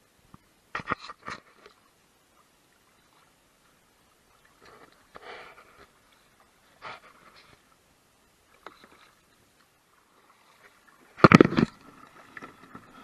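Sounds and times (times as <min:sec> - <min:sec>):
paddle splashing in water: 0:08.4 - 0:13.0.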